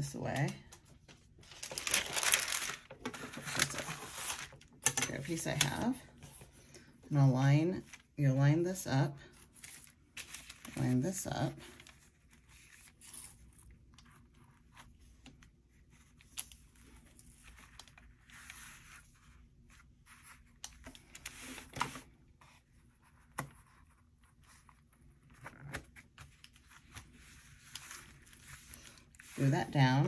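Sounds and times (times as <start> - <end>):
paper and boards rustling: 0.4 - 6.6, 9.6 - 13.5.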